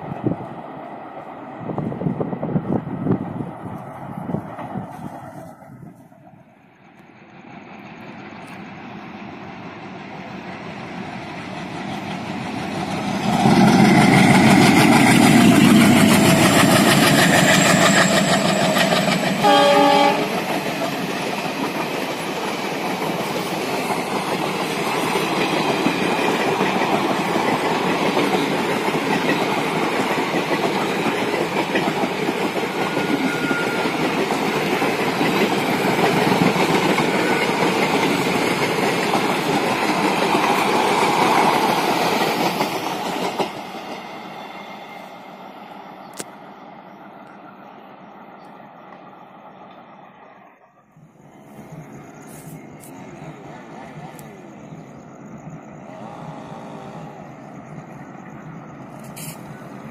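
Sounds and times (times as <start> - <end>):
diesel locomotive passing: 0.0 - 59.9
train wheels clickety-clack: 10.5 - 44.4
train horn blast: 19.4 - 20.5.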